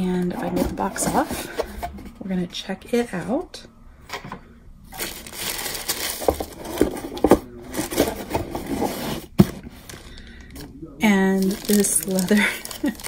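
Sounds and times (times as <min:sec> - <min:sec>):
tissue paper crinkling: 0:04.9 - 0:10.2, 0:11.2 - 0:13.0.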